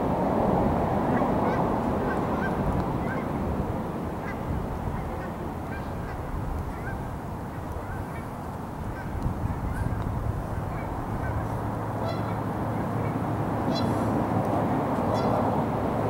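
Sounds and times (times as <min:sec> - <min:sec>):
wind noise on microphone: 0:00.0 - 0:16.0
geese honking: 0:01.1 - 0:03.3, 0:04.2 - 0:07.1, 0:10.7 - 0:12.4, 0:13.0 - 0:14.1, 0:15.1 - 0:15.4.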